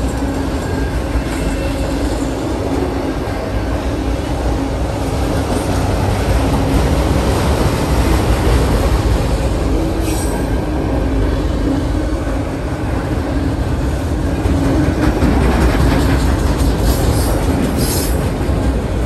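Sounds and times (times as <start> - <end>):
train wheels rumbling on rails: 0.0 - 19.0
high wheel squeal: 10.0 - 10.7.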